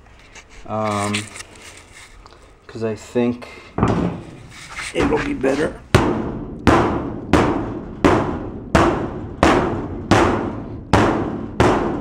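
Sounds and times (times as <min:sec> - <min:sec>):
hammer striking sheet metal: 0:05.0 - 0:12.0.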